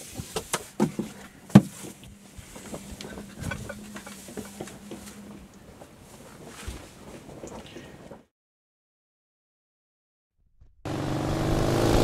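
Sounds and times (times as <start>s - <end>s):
rope knocking and rustling on winch: 0.0s - 8.3s
faint steady hum: 0.6s - 8.2s.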